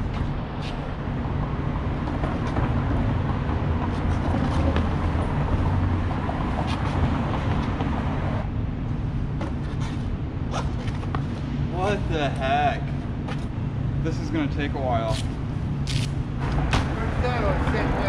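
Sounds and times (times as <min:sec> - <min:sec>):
vehicle rumble: 0:00.0 - 0:18.0.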